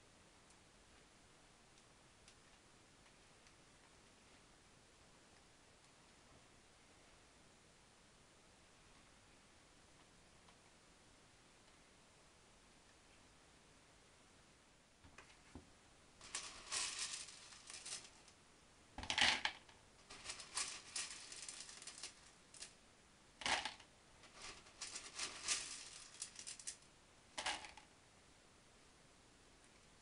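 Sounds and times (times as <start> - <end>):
clay pebbles clinking against glass: 16.2 - 18.2, 19.4 - 22.7, 23.5 - 26.8.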